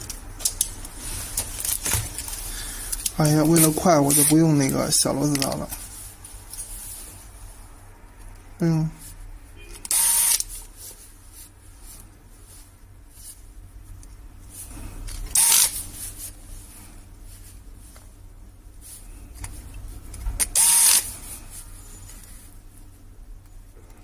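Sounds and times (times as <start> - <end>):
electric screwdriver whirring: 9.9 - 10.5, 15.3 - 15.8, 20.4 - 21.1.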